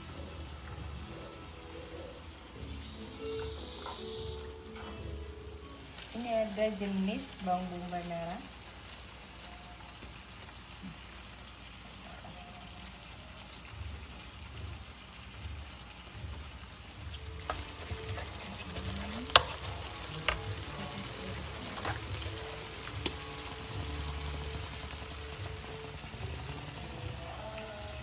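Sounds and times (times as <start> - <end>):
stew sizzling in a frying pan: 0.0 - 28.0
wooden spatula knocking on pan: 19.2 - 20.5.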